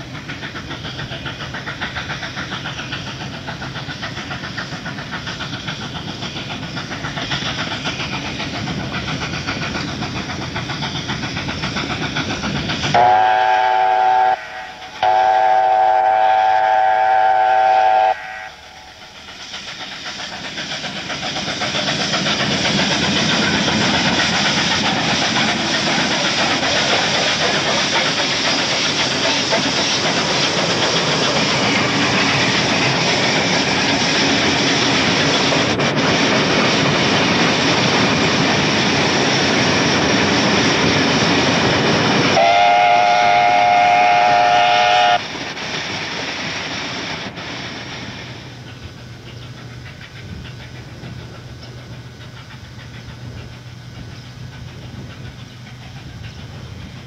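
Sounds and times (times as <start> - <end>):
train running past: 0.0 - 57.0
steam whistle chord: 13.0 - 18.7, 42.4 - 45.2.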